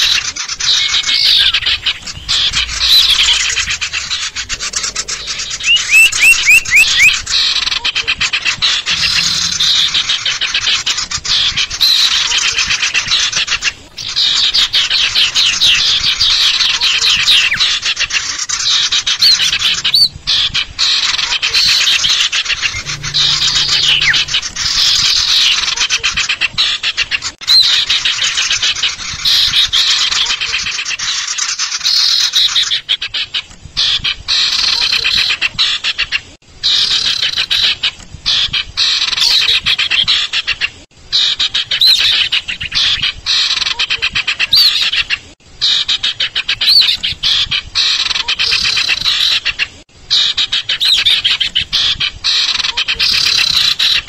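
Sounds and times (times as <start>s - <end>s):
bird chirps and whistles: 0.7s - 7.2s, 22.6s - 25.6s.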